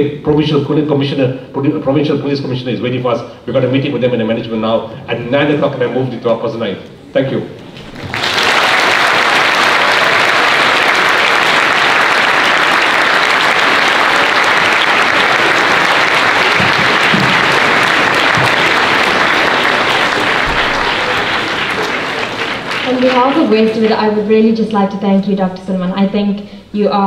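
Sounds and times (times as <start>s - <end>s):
audience applauding: 7.7s - 24.2s.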